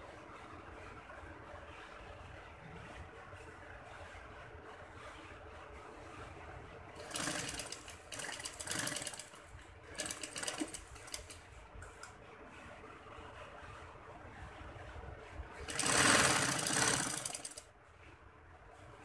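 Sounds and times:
sewing machine needle clicking: 0:10.0 - 0:11.4.

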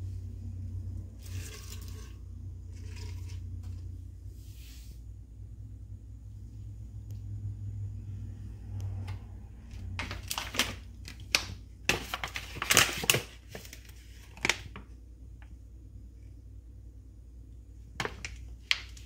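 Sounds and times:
plastic pouch crinkling: 0:10.0 - 0:14.8.

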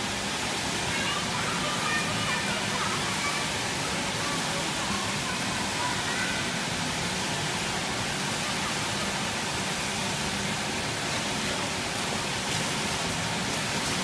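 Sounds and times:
air conditioning hiss: 0:00.0 - 0:14.0
faint voices: 0:00.8 - 0:07.0.

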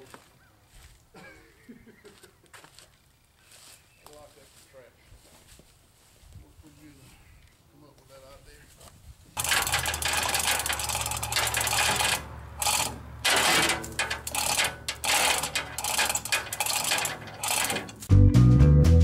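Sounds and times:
ratchet clicking in short strokes: 0:09.4 - 0:18.1
upbeat music with drums and guitar: 0:18.1 - 0:19.0.

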